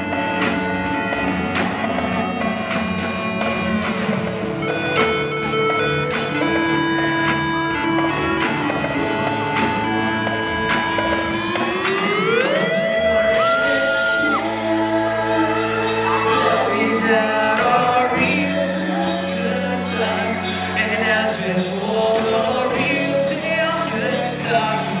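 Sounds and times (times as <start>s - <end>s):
low held keyboard notes: 0.0s - 25.0s
man singing into a microphone: 13.3s - 25.0s.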